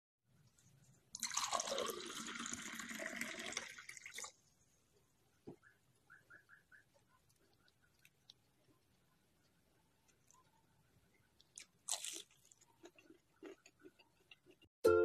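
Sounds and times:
drink pouring into a glass: 1.2s - 4.4s.

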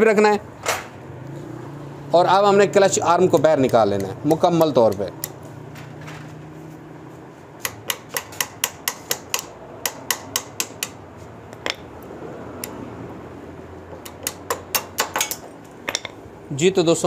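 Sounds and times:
hammer tapping on metal: 2.9s - 5.5s, 7.6s - 11.9s, 13.9s - 16.2s.

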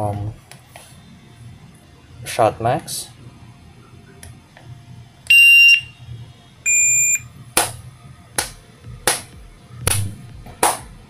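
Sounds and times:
shot timer beeps: 5.3s - 5.9s, 6.7s - 7.3s.

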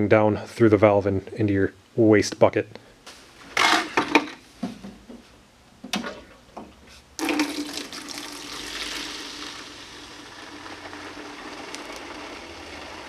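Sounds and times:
water rushing into bucket: 7.2s - 13.0s.

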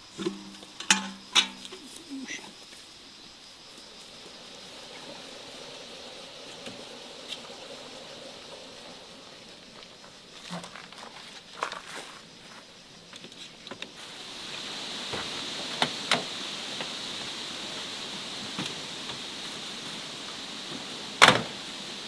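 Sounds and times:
steady high hiss: 0.0s - 22.0s
wooden crates knocking and scraping: 9.6s - 14.0s.

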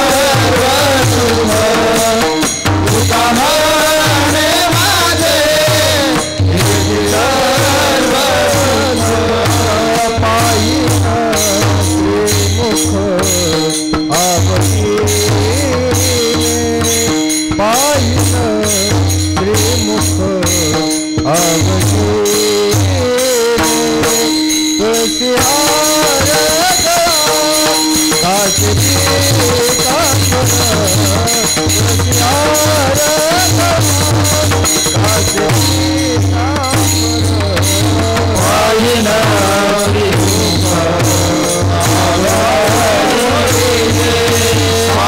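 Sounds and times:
man singing: 0.0s - 45.0s
percussion with clinking strokes: 0.0s - 45.0s
steady drone: 34.4s - 45.0s.

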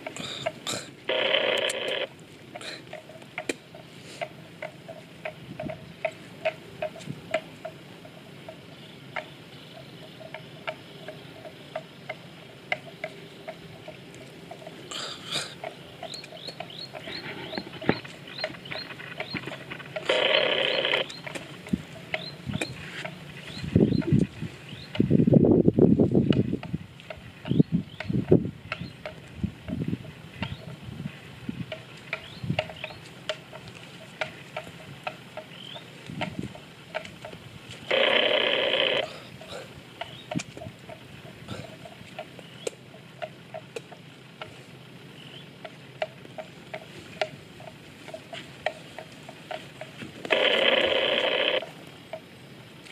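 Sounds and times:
buffalo tearing and chewing grass: 10.3s - 25.1s, 26.2s - 52.9s.

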